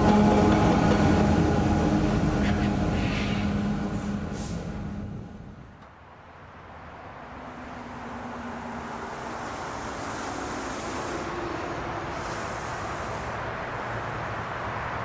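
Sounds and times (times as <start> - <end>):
approaching vehicle rushing: 6.5 - 15.0.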